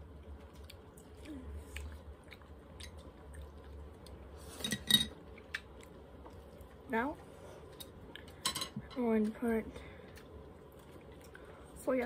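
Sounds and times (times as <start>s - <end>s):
chewing crisp lettuce: 0.2s - 4.6s, 10.2s - 11.6s.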